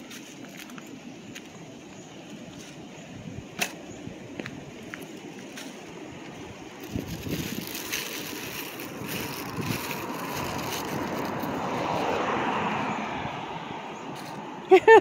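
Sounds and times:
wind hiss on microphone: 0:02.3 - 0:13.4
vehicle passing: 0:05.9 - 0:14.8.

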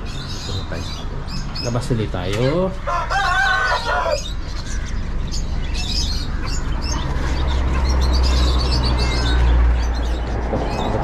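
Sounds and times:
birds chirping and squawking: 0:00.0 - 0:11.0.

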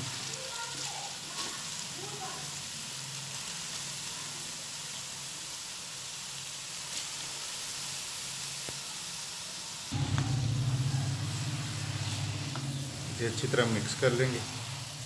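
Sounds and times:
carrots sizzling in ghee: 0:00.0 - 0:15.0
low rumble: 0:09.9 - 0:15.0.

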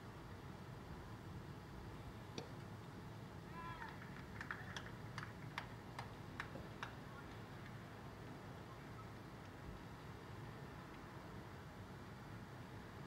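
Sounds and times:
outdoor background noise: 0:00.0 - 0:13.0
hand claps: 0:03.8 - 0:07.8.

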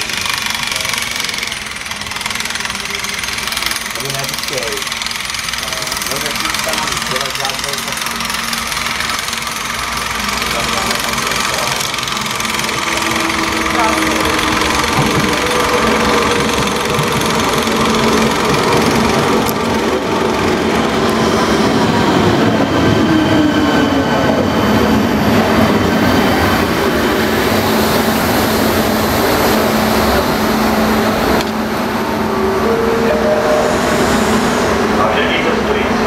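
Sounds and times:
train wheels and running gear: 0:00.0 - 0:32.8.

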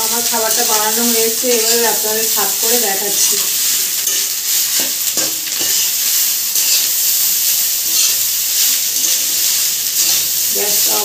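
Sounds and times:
rice sizzling in pan: 0:00.0 - 0:11.0
metal spatula scraping pan: 0:03.1 - 0:11.0.

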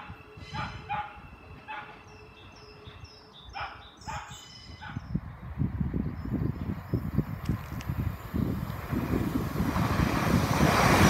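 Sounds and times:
dog barking: 0:00.6 - 0:01.9, 0:03.6 - 0:05.0.

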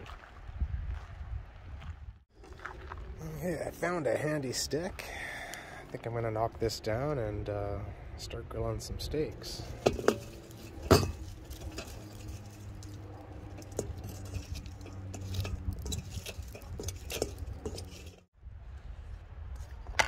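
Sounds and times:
low steady hum: 0:02.6 - 0:20.0
clinks and knocks of barbecue coals: 0:09.3 - 0:18.3.

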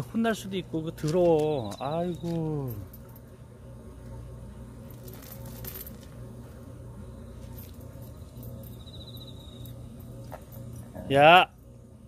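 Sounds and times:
faint chain clinks: 0:02.2 - 0:03.3, 0:04.8 - 0:06.1, 0:07.4 - 0:11.1.

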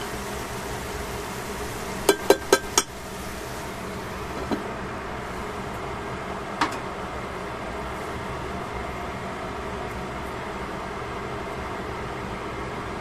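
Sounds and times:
vegetables sizzling: 0:00.0 - 0:05.7.

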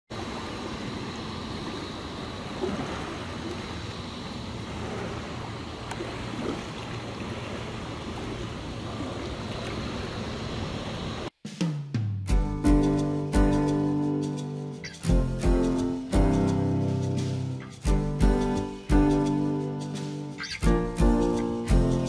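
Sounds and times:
water at shore: 0:00.1 - 0:11.3
wind: 0:00.1 - 0:11.4, 0:13.4 - 0:22.0.

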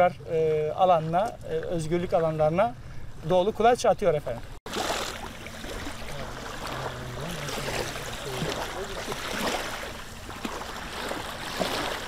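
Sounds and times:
small waves lapping: 0:04.4 - 0:12.0.

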